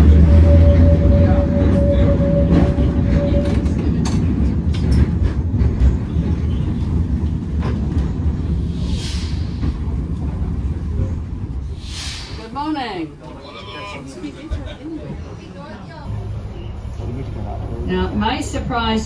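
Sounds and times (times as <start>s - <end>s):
tram rumbling on rails: 0.0s - 19.0s.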